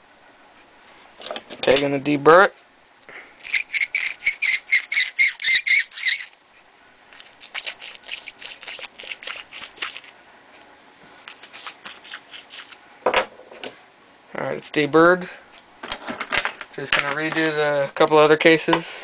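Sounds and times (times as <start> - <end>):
metal scraping and squeaking: 3.4 - 6.4.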